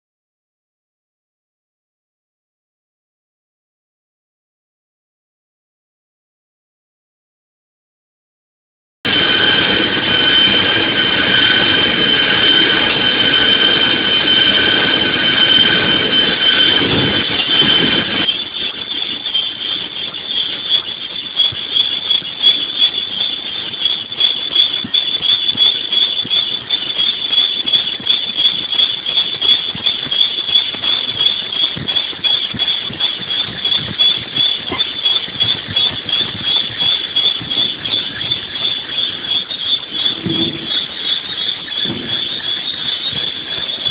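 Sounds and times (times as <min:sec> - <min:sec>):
low machine rumble: 0:09.1 - 0:20.8, 0:22.4 - 0:43.9
drill bits squealing in metal: 0:09.1 - 0:43.9.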